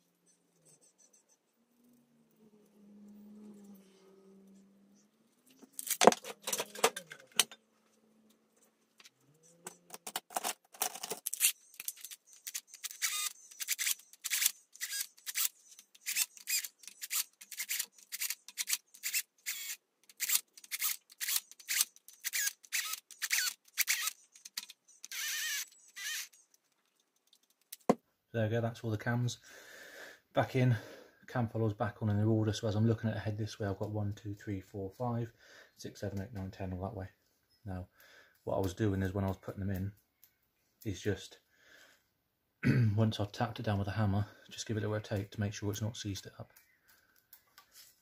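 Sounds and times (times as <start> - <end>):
ratchet clicking: 11.3 - 26.4.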